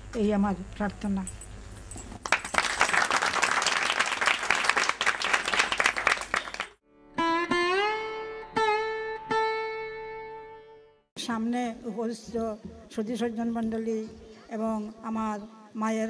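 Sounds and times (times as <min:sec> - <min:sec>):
audience clapping: 0:02.2 - 0:06.8
sitar plucked notes: 0:06.9 - 0:11.0.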